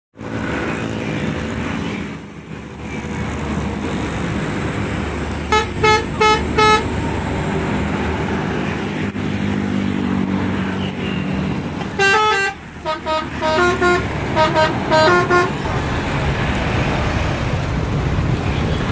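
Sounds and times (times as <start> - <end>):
road traffic: 0.1 - 18.9
bus engine rumble: 0.2 - 18.9
bus horn blasts: 5.5 - 6.9, 11.8 - 15.6.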